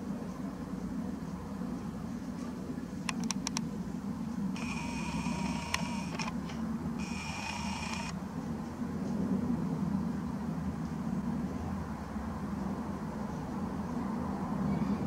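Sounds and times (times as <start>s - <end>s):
low steady hum: 0.0s - 11.2s
quick clicks: 3.0s - 3.7s, 4.6s - 8.2s
camera zoom motor whirring: 4.6s - 8.2s.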